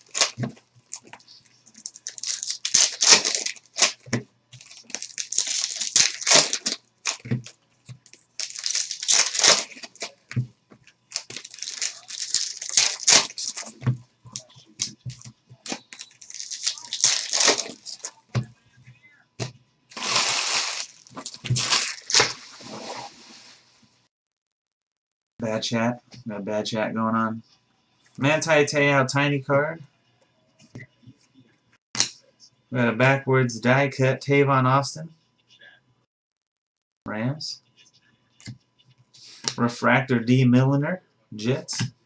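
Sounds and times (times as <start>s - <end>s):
foil wrappers tearing and crinkling: 0.0s - 10.2s, 11.1s - 18.2s, 19.9s - 22.8s.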